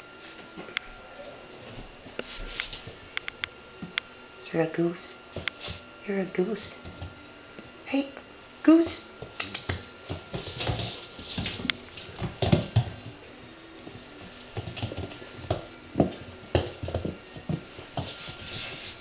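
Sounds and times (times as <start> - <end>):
puppy claws pattering on tile: 9.2 - 13.1, 13.8 - 18.9.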